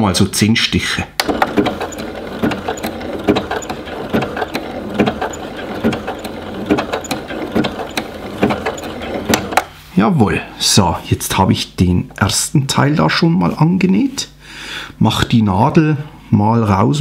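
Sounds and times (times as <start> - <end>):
sewing machine stitching: 1.2 - 9.7.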